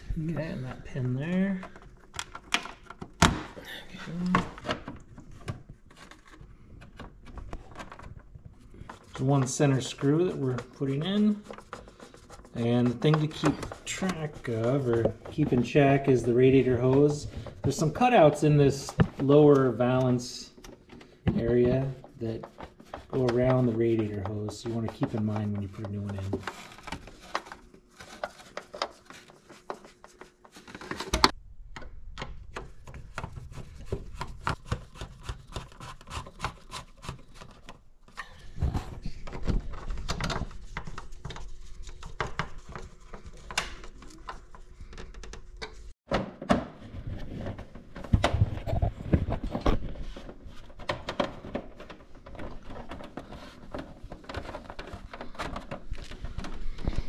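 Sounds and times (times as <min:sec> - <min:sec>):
plastic panels clicking and knocking: 0:01.5 - 0:03.6.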